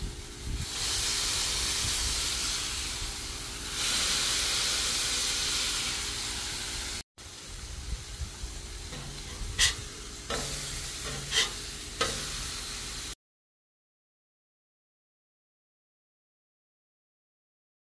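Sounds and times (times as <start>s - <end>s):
burger patties sizzling on griddle: 0.0s - 13.2s
metal spatula clinking on griddle: 8.9s - 12.4s.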